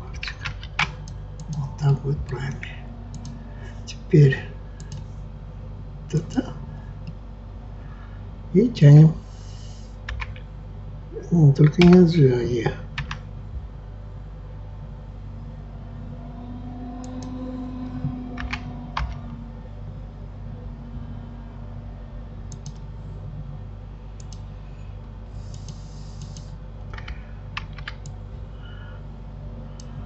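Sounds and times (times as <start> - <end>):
steady low hum: 0.0 - 30.0
computer keys clicking: 0.1 - 1.6, 3.1 - 3.4, 4.8 - 5.1, 10.1 - 10.4, 13.0 - 13.2, 18.1 - 19.2, 22.5 - 22.9, 24.2 - 24.4, 25.4 - 28.2.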